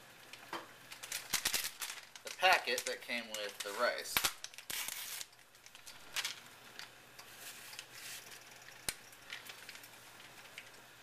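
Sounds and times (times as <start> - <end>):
paper packet crinkling: 0.9 - 6.4.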